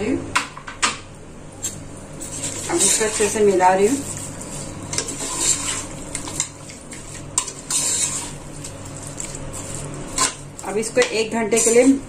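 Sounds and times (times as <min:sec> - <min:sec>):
spoon scraping a metal pot: 0:02.2 - 0:03.5, 0:04.6 - 0:08.4
spoon mixing chicken in marinade: 0:02.2 - 0:12.0.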